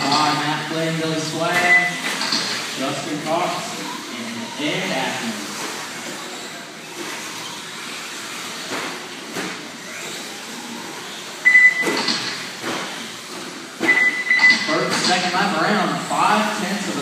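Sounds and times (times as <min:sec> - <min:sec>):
rc car motor whine: 0:00.0 - 0:17.0
short high beep: 0:01.6 - 0:02.0, 0:11.4 - 0:12.0, 0:13.8 - 0:14.7.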